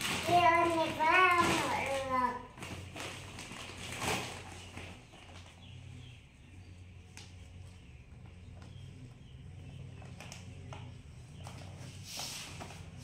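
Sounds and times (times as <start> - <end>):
plastic wrapping rustling: 0.0 - 5.7.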